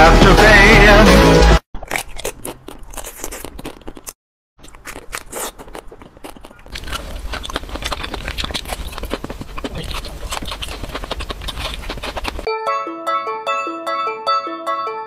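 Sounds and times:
crunchy bites of ice cream bars: 1.8 - 12.5.

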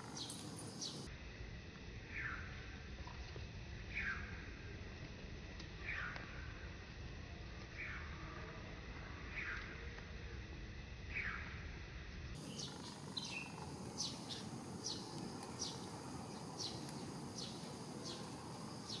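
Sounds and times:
lower falling bird chirp: 0.0 - 1.1, 12.4 - 19.0
outdoor background noise: 0.0 - 19.0.

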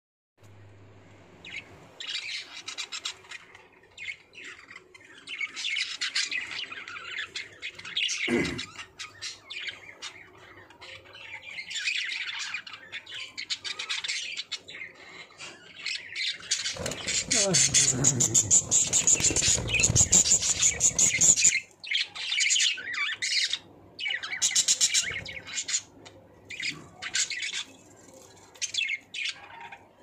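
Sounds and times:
budgerigars chattering: 15.9 - 25.9.

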